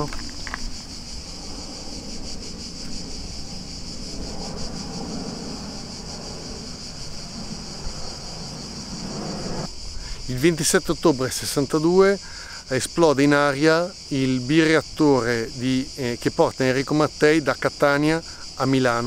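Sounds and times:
distant jet airliner rumble: 0.0s - 11.6s
insects chirring: 0.0s - 19.0s.

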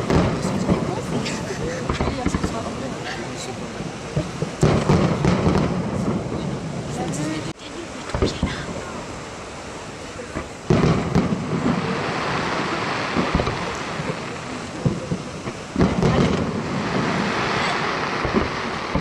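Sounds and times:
sharp firework bangs: 0.0s - 1.2s, 1.8s - 3.0s, 3.8s - 7.1s, 10.3s - 19.0s
crackling hiss: 0.0s - 19.0s
firework shell booms: 4.1s - 6.5s, 10.4s - 19.0s.

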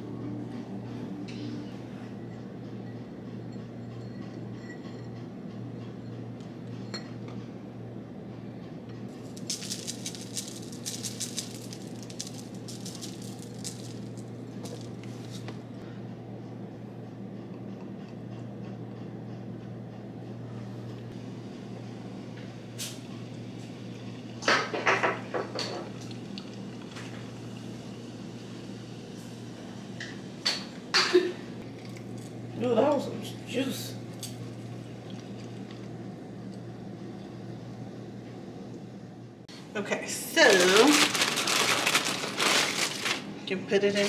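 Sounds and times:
steady low hum: 0.0s - 44.0s
seasoning shaker rattling: 9.1s - 15.5s, 40.4s - 43.3s.

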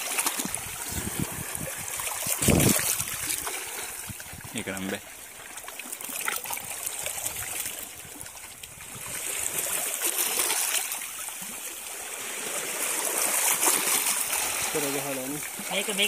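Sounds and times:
hand sloshing in water: 0.0s - 4.4s
water trickling over rocks: 0.0s - 16.0s.

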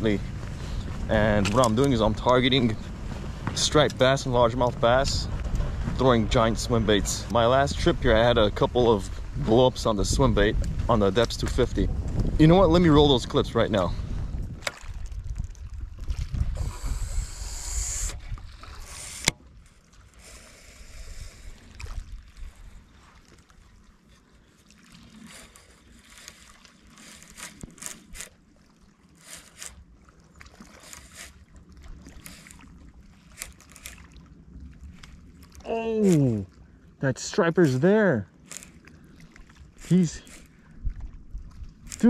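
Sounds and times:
wind rumbling on microphone: 0.0s - 24.0s, 38.4s - 42.0s
water lapping on rocky shore: 0.0s - 42.0s.

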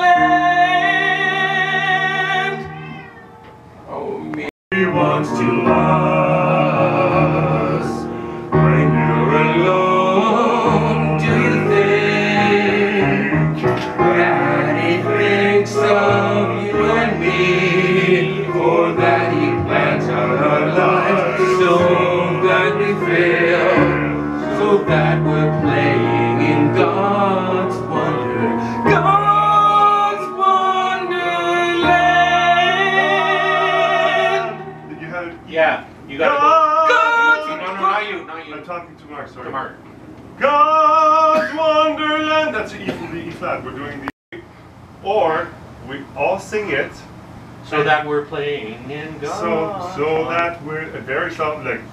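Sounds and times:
keyboard: 0.0s - 38.6s
men singing in harmony: 4.7s - 35.1s, 36.2s - 37.9s.

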